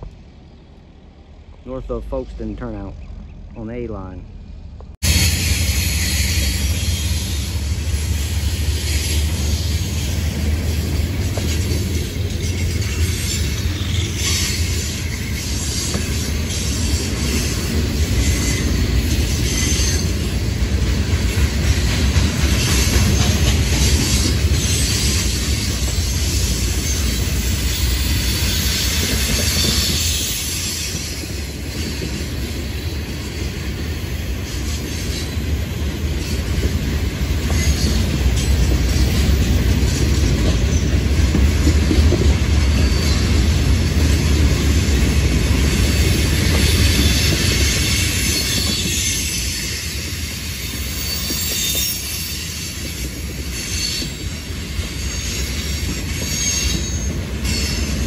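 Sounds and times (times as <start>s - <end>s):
freight train rumble: 0.0s - 58.0s
wheels clicking over rail joints: 8.0s - 58.0s.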